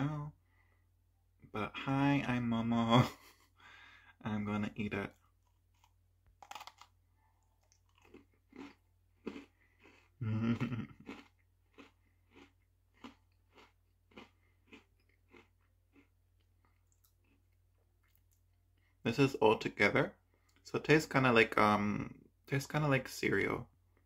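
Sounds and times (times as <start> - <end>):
person chewing crunchy cookie: 5.0 - 18.9.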